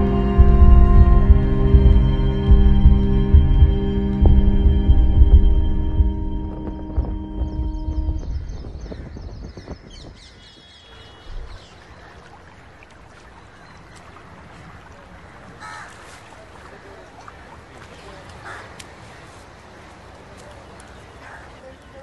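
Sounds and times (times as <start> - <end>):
low rumble: 0.0 - 12.0
birds chirping: 0.0 - 15.9.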